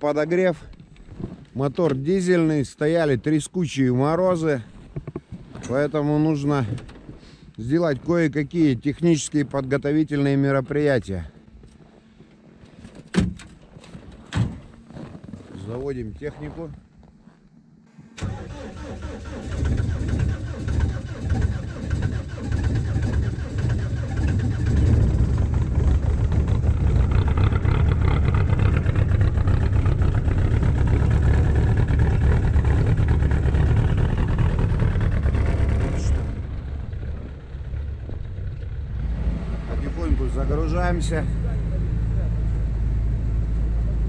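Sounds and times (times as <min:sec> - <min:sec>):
diesel engine starting and running: 0:17.9 - 0:44.0.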